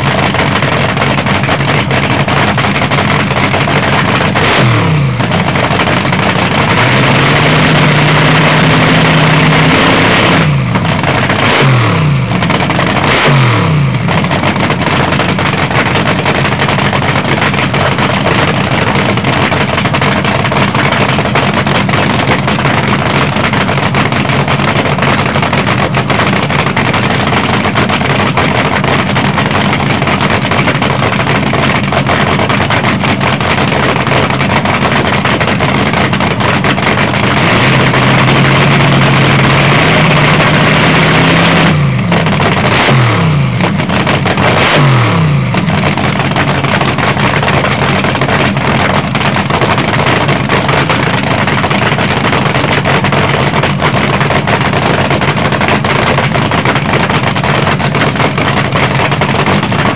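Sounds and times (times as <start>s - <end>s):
dragster engine cackling and revving: 0.0s - 59.9s.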